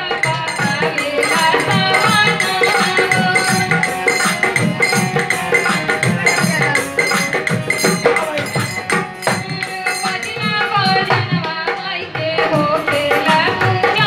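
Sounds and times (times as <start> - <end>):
electronic keyboard: 0.0 - 11.2
hand drum beats: 0.0 - 14.0
woman singing into microphone: 0.0 - 14.0.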